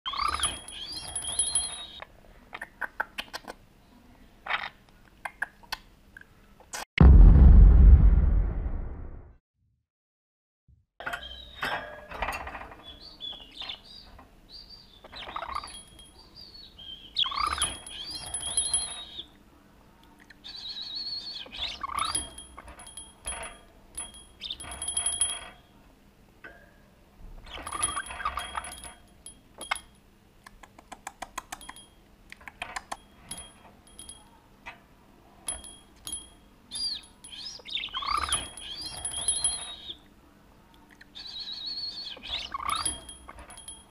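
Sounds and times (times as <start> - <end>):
small cage bell jingling: 0.1 - 2.0, 15.3 - 16.5, 17.3 - 19.3, 21.9 - 25.7, 27.5 - 30.0, 35.5 - 40.0, 42.2 - 43.9
budgerigar chirping and warbling: 17.0 - 18.4, 36.8 - 40.0, 41.1 - 43.4.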